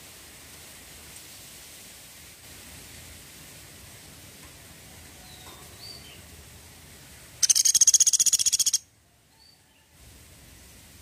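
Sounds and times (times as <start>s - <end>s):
faint short bird chirps: 7.4s - 8.8s
woodpecker rattling trill: 7.4s - 8.8s.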